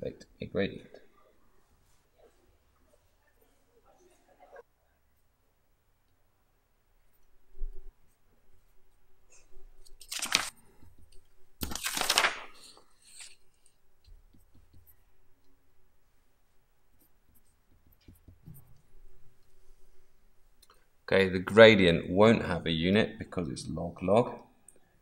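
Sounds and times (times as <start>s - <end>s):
paper rustling: 9.8s - 13.8s.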